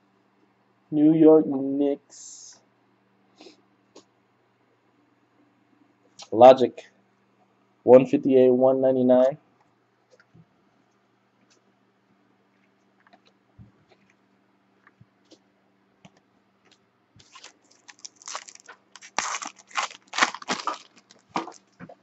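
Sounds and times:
foil wrapper tearing and crinkling: 17.2s - 21.8s.

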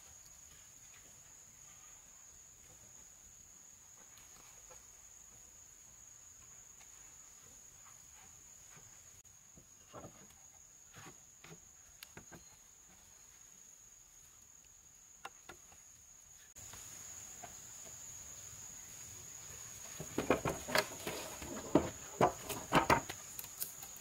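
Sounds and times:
crickets buzzing: 0.0s - 24.0s
wooden beams knocking: 19.9s - 23.2s.

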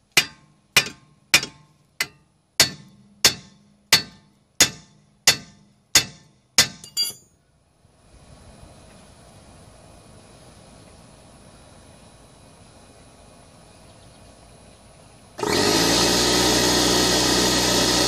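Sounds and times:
hammer clanging on steel: 0.1s - 7.2s.

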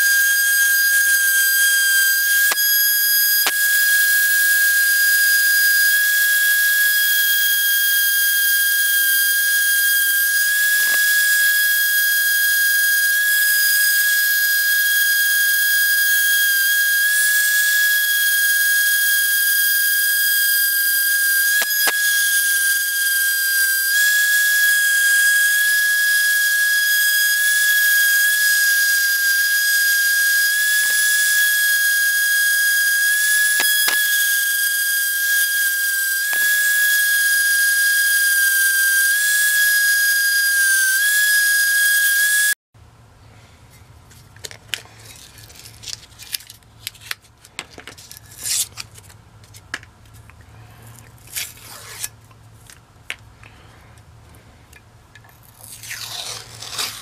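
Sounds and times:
orbital sander whining: 0.0s - 42.6s.

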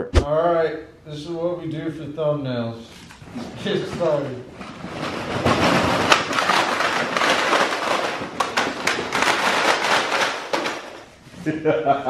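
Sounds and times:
lures clattering onto concrete: 6.1s - 11.1s.

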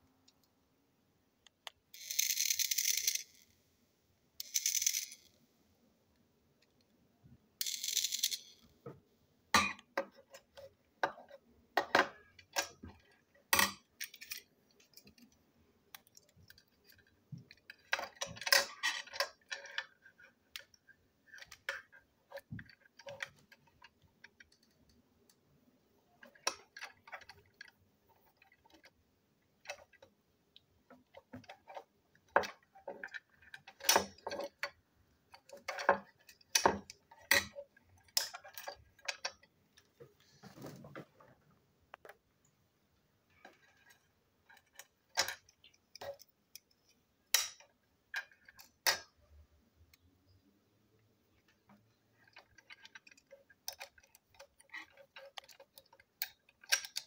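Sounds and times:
plastic toy parts clicking: 1.4s - 3.5s, 4.4s - 5.3s, 7.6s - 8.7s, 9.6s - 25.4s, 26.2s - 29.0s, 29.6s - 39.5s, 43.3s - 49.2s, 51.5s - 57.0s.

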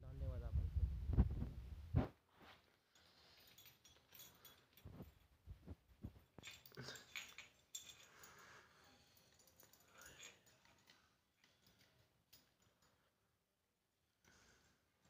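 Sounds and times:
metal chain links clinking: 2.7s - 5.4s, 6.1s - 13.2s.

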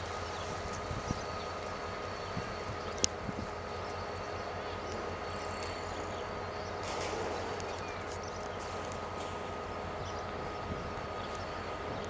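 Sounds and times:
train rumbling on rails: 0.0s - 12.0s.

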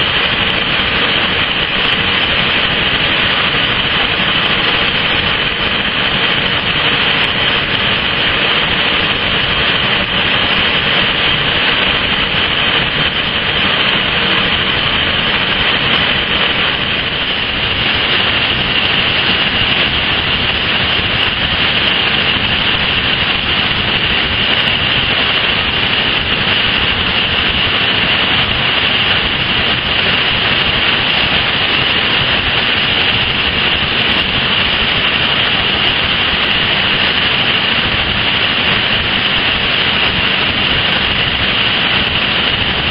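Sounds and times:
high hiss: 0.0s - 42.9s
industrial furnace roar: 0.0s - 42.9s.

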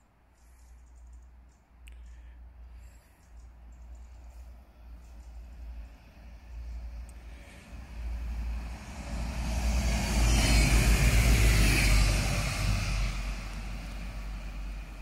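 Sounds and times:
vehicle passing by: 4.2s - 15.0s.

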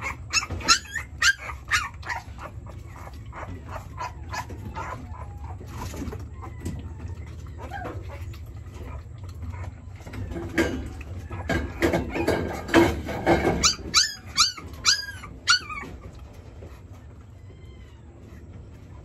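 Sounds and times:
puppy whimpering and whining: 0.0s - 19.0s.

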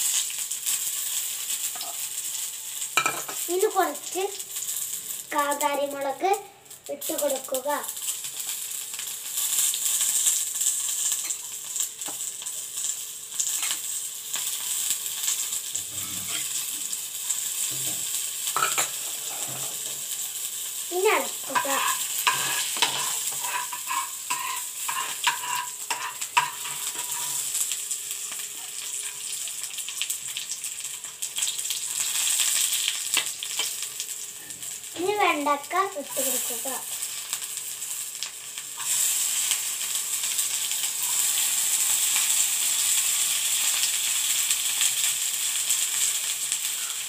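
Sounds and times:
oil sizzling in a pan: 0.0s - 47.0s
spoon stirring and knocking pan: 3.0s - 3.5s, 17.8s - 20.0s, 21.5s - 27.4s.

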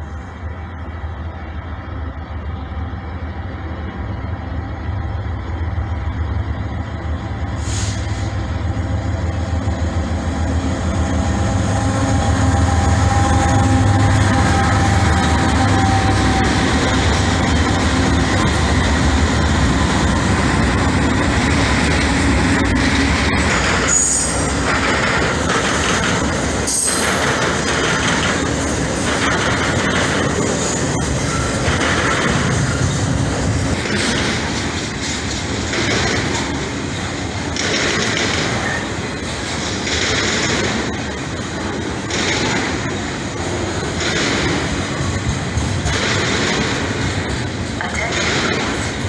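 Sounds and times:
diesel locomotives droning: 0.0s - 49.0s
train cars rolling over rails: 0.0s - 49.0s.

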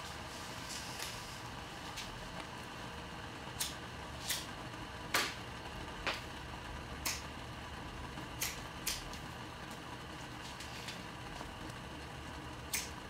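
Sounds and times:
low room hum: 0.0s - 13.0s
cigarette lighter flicking: 3.6s - 4.5s, 7.0s - 7.3s, 8.4s - 9.1s, 12.7s - 13.0s.

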